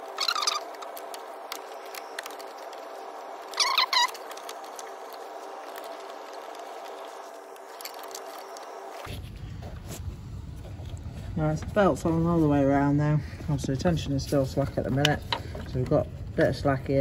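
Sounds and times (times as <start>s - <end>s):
rubber belt squeaks: 0.0s - 8.8s
steady hum: 0.0s - 17.0s.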